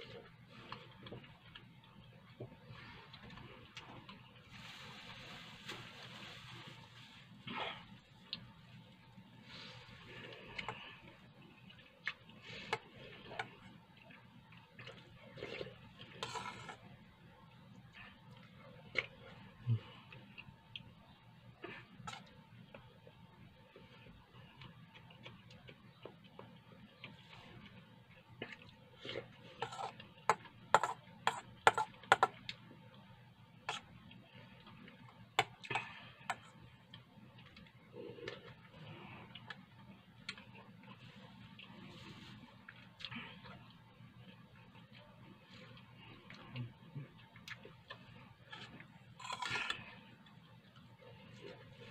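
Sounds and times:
metal spoon scraping steel bowl: 16.2s - 16.8s.

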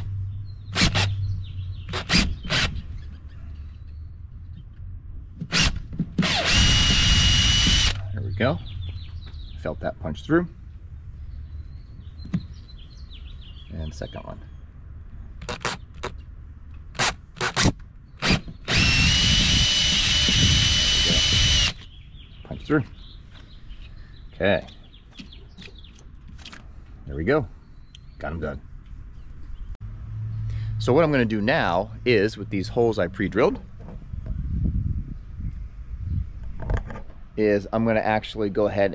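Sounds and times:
cordless drill bursts: 0.8s - 1.2s, 5.5s - 8.1s, 17.0s - 21.8s.

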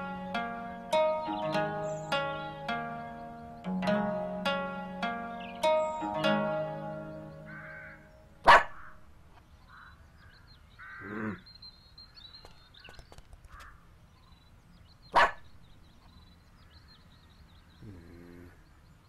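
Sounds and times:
plucked zither-like notes: 0.0s - 8.3s
dog barking: 8.4s - 8.8s, 15.2s - 15.4s
low vocal sound: 17.8s - 18.6s.

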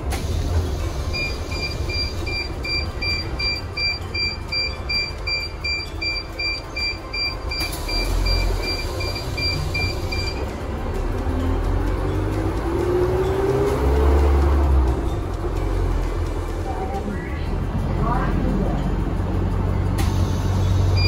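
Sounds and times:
bus rumble from inside: 0.0s - 21.0s
rapid electronic beeping: 1.0s - 10.5s.

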